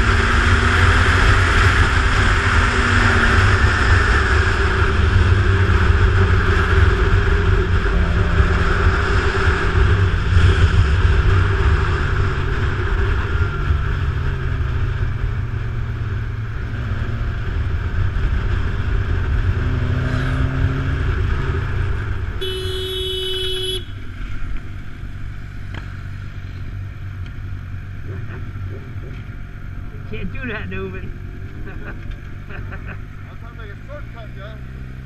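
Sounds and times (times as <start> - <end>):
motorcycle engine: 0.0 - 35.0
vehicle horn: 22.4 - 24.1.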